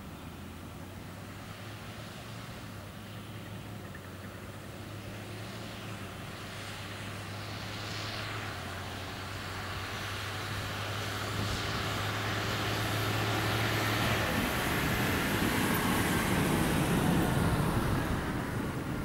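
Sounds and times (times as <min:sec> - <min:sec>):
diesel engines droning: 0:00.0 - 0:19.0.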